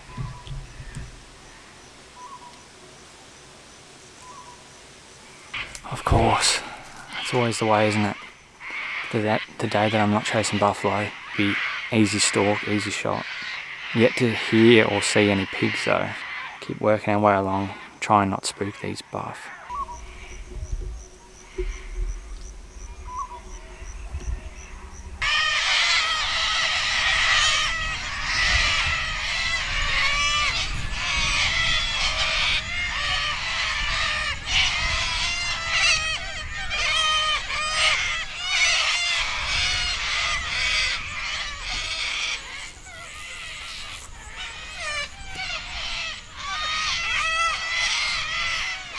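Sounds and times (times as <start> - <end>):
cockatoos screeching: 5.6 - 18.0, 18.6 - 48.9
low rumble: 19.8 - 26.1.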